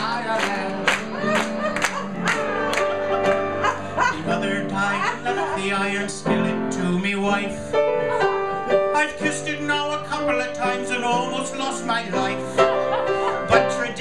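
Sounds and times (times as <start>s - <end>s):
man singing into a microphone: 0.0s - 1.3s, 4.0s - 7.8s, 8.9s - 12.6s, 13.4s - 14.0s
instrumental accompaniment: 0.0s - 14.0s.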